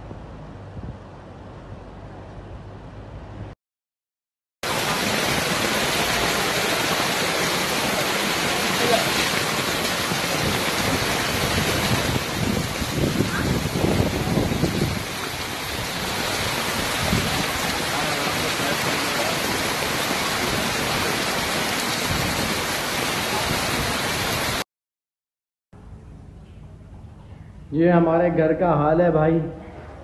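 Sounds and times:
heavy rain pouring: 4.6 - 24.6.

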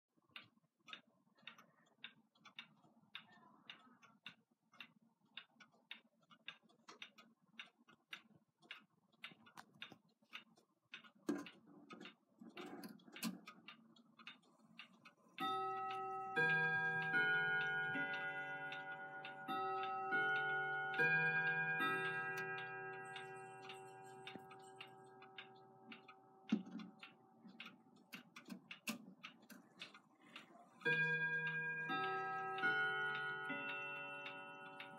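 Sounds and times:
clock ticking: 0.3 - 34.9
clock chime tune: 15.4 - 26.5, 30.8 - 34.9.

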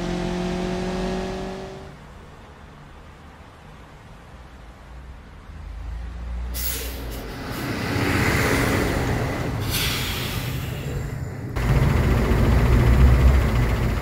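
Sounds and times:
bus engine rumble: 1.9 - 14.0
air brake hiss: 6.6 - 7.7, 9.6 - 11.0.

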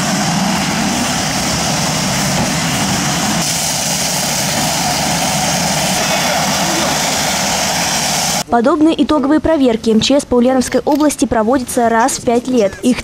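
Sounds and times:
engine droning: 0.0 - 8.5
foam jet spraying hiss: 1.5 - 8.4.

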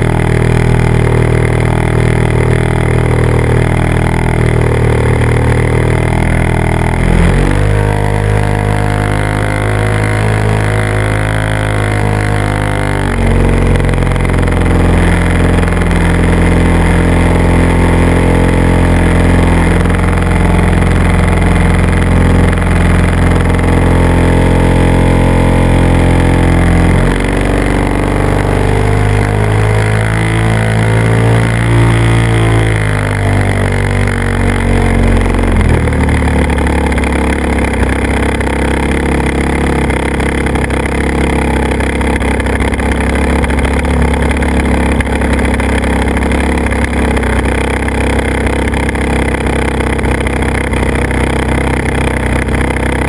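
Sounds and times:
propeller aircraft engine: 0.0 - 53.0.

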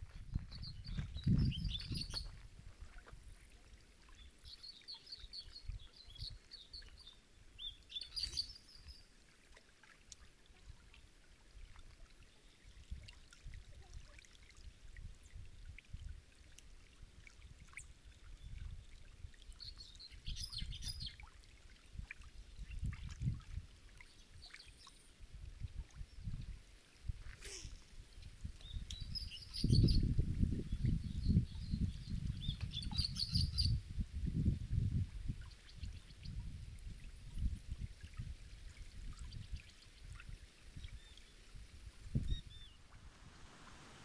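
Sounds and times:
wind rumble on microphone: 0.0 - 3.5, 21.9 - 23.8, 25.2 - 44.0
small birds chirping: 0.4 - 2.4, 4.1 - 9.1, 28.6 - 30.1, 30.7 - 33.8.

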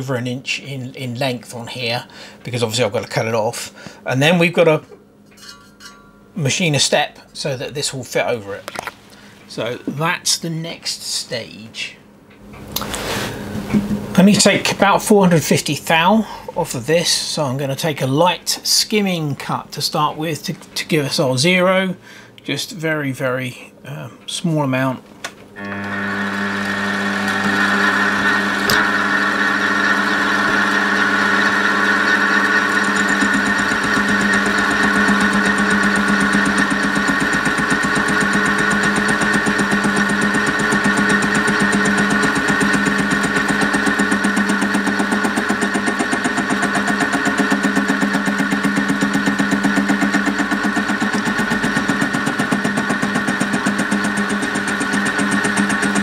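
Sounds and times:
metal lathe motor whine: 25.6 - 56.0
lathe tool fast ticking: 26.0 - 56.0.

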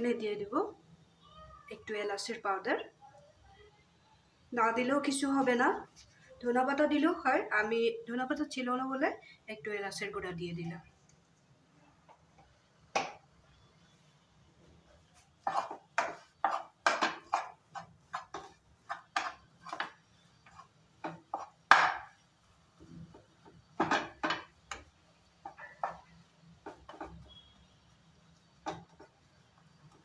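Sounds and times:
spatula scraping frying pan: 15.0 - 22.2, 23.0 - 27.8.

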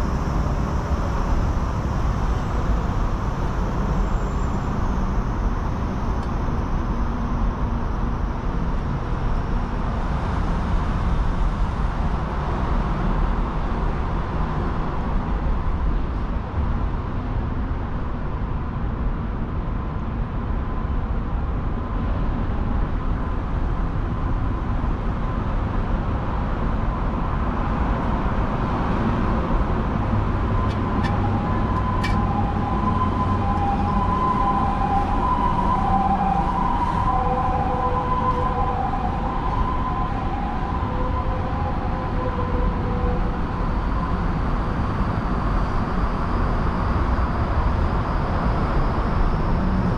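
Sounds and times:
distant city traffic rumble: 0.0 - 49.9
faint wavering tone: 30.5 - 49.9.

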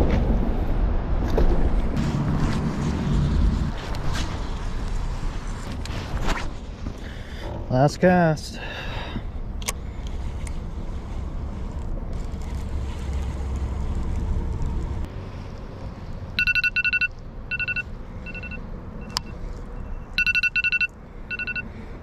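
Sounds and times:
steady low rumble: 0.0 - 21.9
electronic alarm beeping: 16.4 - 21.7.

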